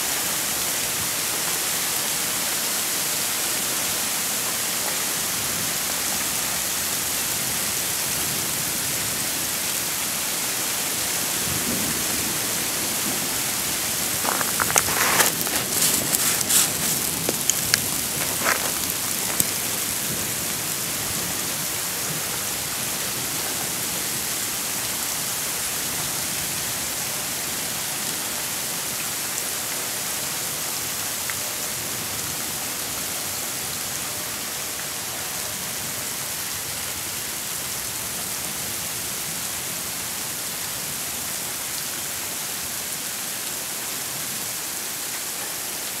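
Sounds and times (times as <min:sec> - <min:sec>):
hail and rain falling: 0:00.0 - 0:46.0.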